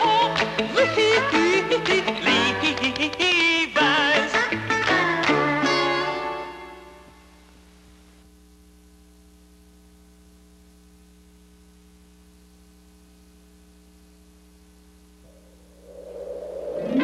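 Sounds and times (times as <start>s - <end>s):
faint tape hiss: 0.0s - 17.0s
low electrical hum: 6.1s - 17.0s.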